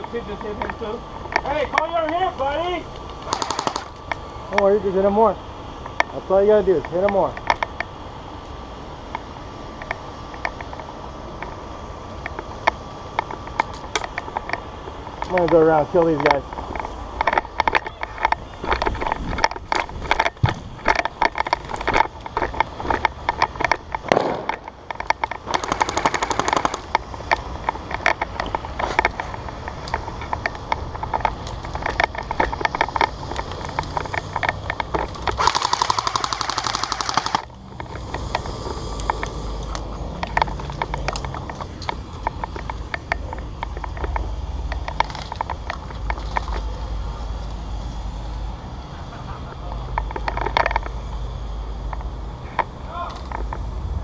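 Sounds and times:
airsoft guns firing: 3.2s - 4.0s, 24.0s - 24.7s, 25.4s - 26.9s, 35.4s - 37.5s.

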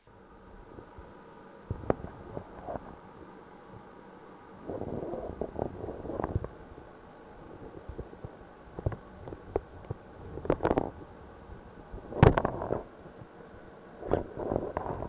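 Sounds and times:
gurgling rumbles in pipe: 4.6s - 6.8s, 12.0s - 12.9s.

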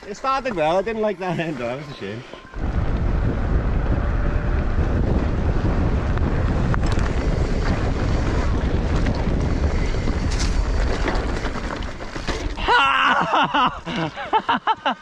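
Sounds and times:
wind rumble on microphone: 2.5s - 12.7s.

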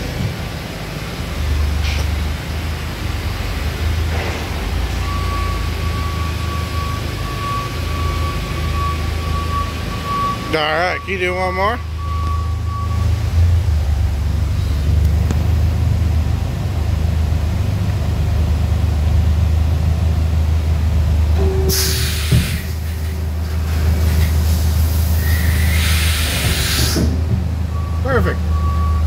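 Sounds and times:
machine clunk: 4.0s - 4.8s
loud hiss: 21.7s - 27.2s.

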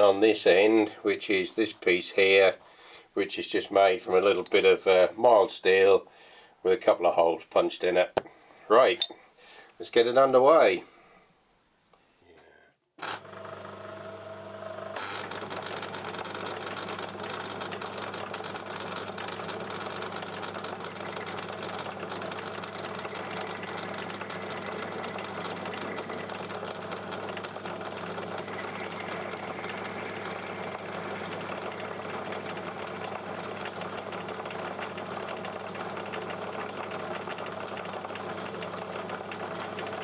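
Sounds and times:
metal lathe running: 15.2s - 40.0s.

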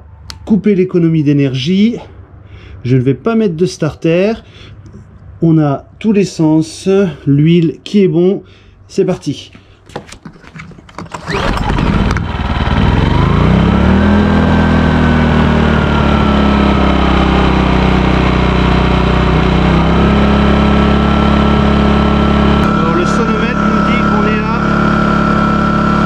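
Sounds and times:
generator engine running: 11.1s - 26.0s.

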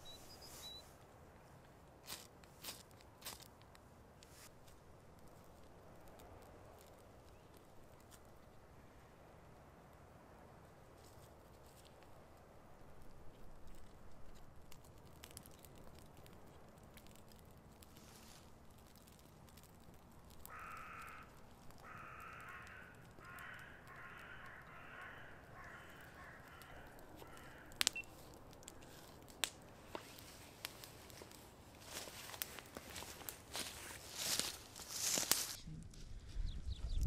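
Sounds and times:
wood fire cracking: 1.0s - 36.2s
crow cawing: 20.4s - 28.0s.

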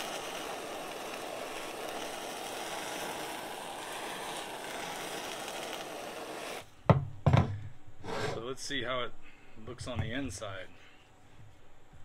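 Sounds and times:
kitchen torch hissing: 0.0s - 6.8s, 7.4s - 8.8s.

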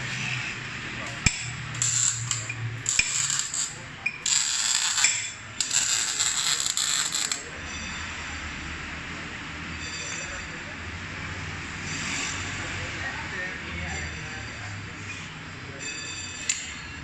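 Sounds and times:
arc welder crackling: 1.1s - 7.5s.

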